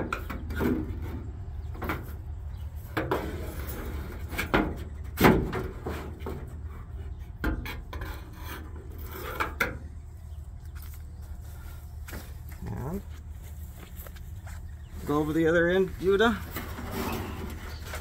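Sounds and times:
wiring scraping on sheet metal: 5.7 - 9.8, 16.4 - 18.0
steady low rumble: 9.8 - 16.8.

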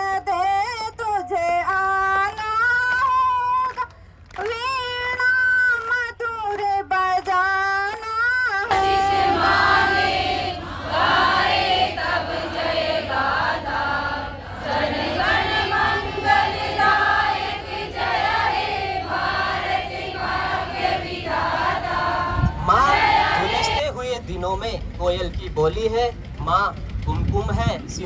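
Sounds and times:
crowd singing in unison: 8.6 - 23.8.

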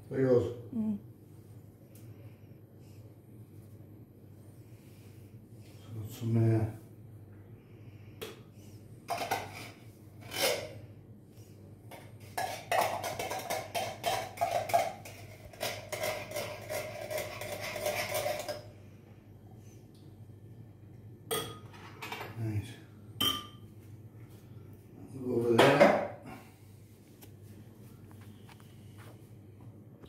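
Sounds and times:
spoon scraping and clinking: 12.4 - 18.7.

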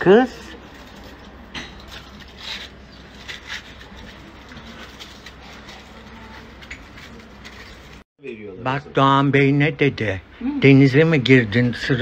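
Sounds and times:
soft rustling and handling: 0.3 - 8.0.

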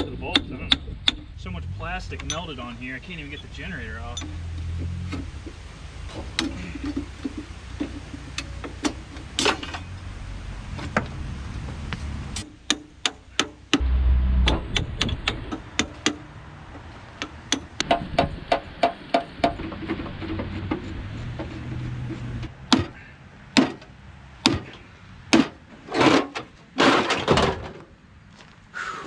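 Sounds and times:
short low rumble: 13.8 - 15.6.

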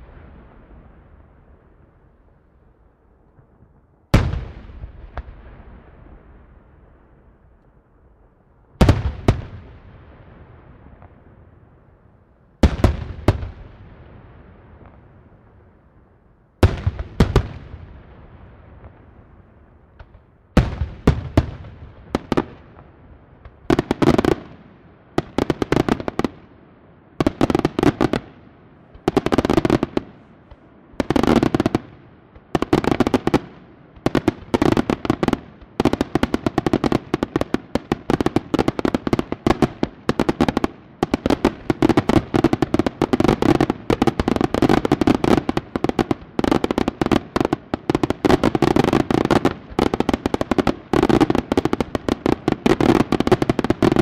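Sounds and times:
firework crackle: 27.2 - 54.0.

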